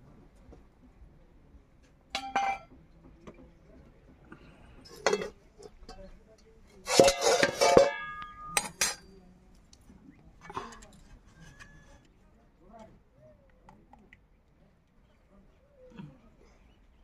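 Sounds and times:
lid clattering with ringing: 2.2 - 2.7, 5.0 - 6.0, 6.9 - 9.0
metal pot lid clinking: 2.2 - 2.7, 4.9 - 6.1, 6.9 - 9.0.

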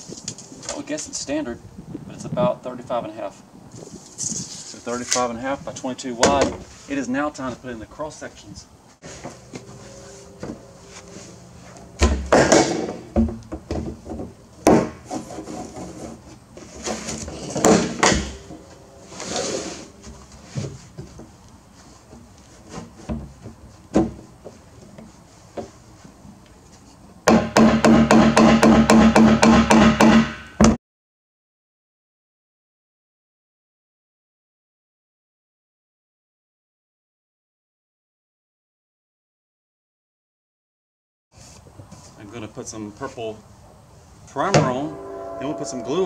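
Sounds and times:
pipe scraping through plastic: 15.0 - 21.0.

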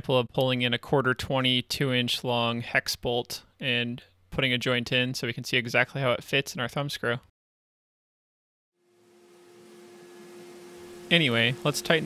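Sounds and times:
low hum: 8.8 - 12.0.

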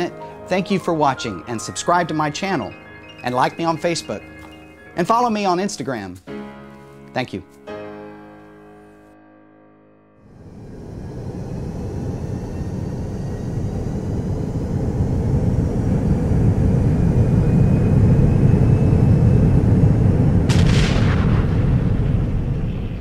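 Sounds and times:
rising whistle-like tones: 0.0 - 5.7, 10.3 - 20.5
deep rumbling: 10.2 - 23.0.

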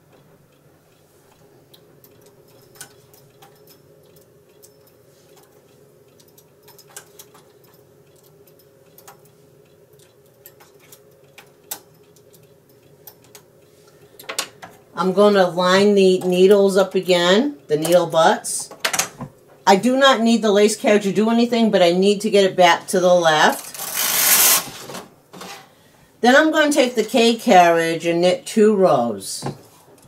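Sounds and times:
low steady hum: 0.0 - 30.0
small metallic clicks: 0.1 - 13.5.

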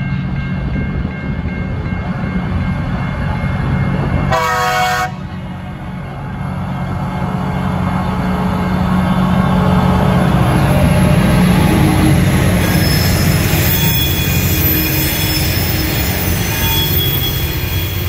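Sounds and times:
diesel locomotive engines droning: 0.0 - 18.0
train horn blast: 4.3 - 5.4.

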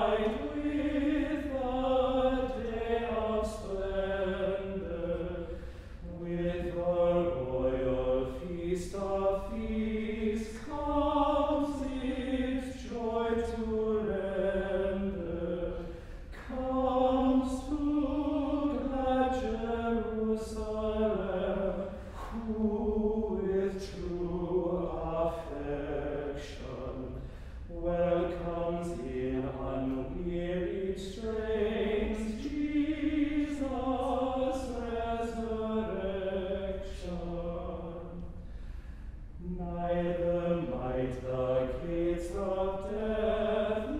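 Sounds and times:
men's choir chanting: 0.0 - 27.0.

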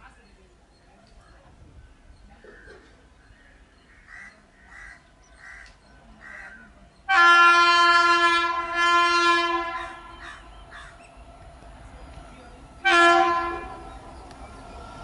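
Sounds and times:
crow cawing: 3.9 - 6.6, 9.7 - 11.0
locomotive horn blast: 7.1 - 10.5, 12.8 - 14.1.

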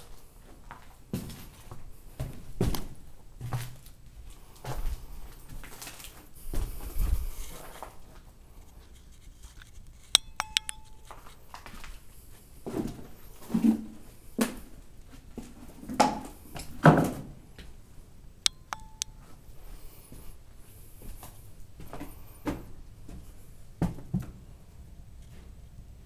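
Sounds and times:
sharp metallic clinks: 10.2 - 11.4, 18.5 - 19.3.

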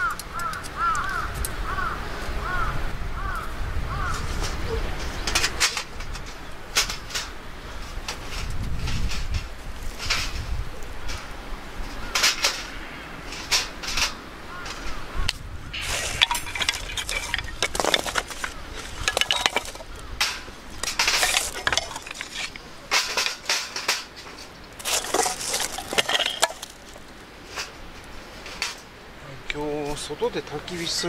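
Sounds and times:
sticks knocking against metal: 15.8 - 27.0.

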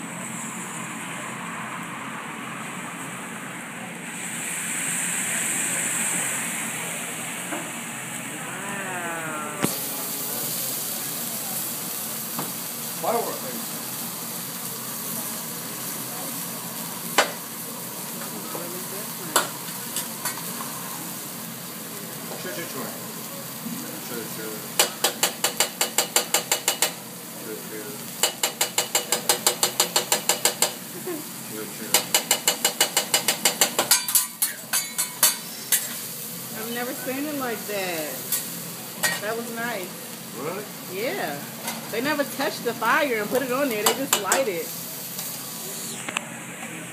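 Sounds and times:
food sizzling on a griddle: 4.1 - 46.9
faint voices: 8.2 - 12.0
metal spatula clacking on griddle: 24.8 - 27.0, 28.2 - 30.8, 31.9 - 36.0, 43.8 - 44.5.

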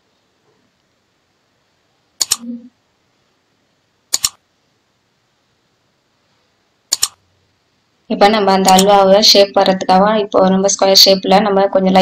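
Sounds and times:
mouse double-clicks: 2.2 - 2.6, 4.1 - 4.4, 6.9 - 7.2, 8.7 - 8.9.

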